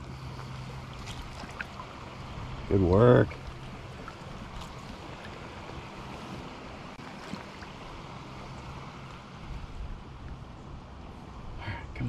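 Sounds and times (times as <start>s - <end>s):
stream running: 0.0s - 12.0s
wind rumble on microphone: 7.7s - 12.0s.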